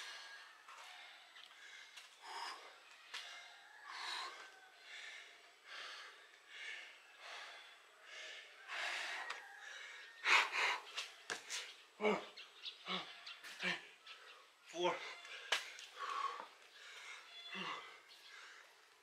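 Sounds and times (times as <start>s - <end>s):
person breathing heavily: 0.0s - 19.0s.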